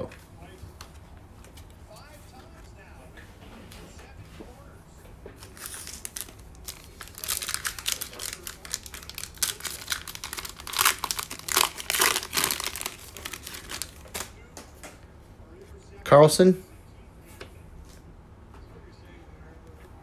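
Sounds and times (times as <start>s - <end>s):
foil wrapper crinkling: 5.4s - 14.4s.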